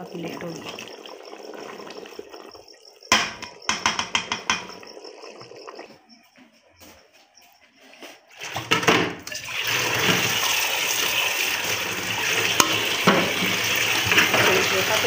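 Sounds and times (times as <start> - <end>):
tap water splashing on dishes: 0.0 - 6.4, 8.3 - 15.0
dishes clattering: 3.1 - 5.0, 8.5 - 9.4, 12.5 - 14.8.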